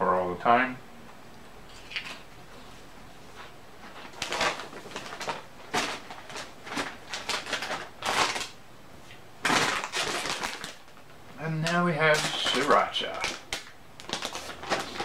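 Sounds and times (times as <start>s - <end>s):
foil snack bags crinkling: 4.0s - 8.6s, 9.4s - 15.0s.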